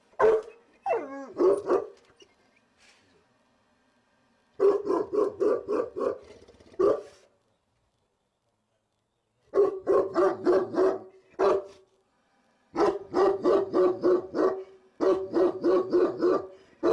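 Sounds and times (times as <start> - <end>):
dog barking loudly: 0.1 - 2.0, 4.6 - 7.2, 9.5 - 11.8, 12.7 - 16.9.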